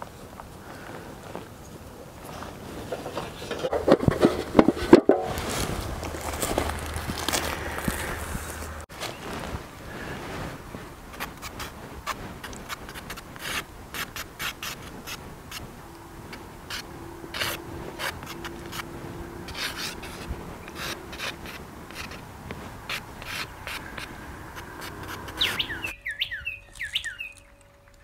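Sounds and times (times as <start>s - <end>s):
charcoal scratching on paper: 11.1s - 15.7s, 16.7s - 25.9s
bird chirping: 23.3s - 28.0s.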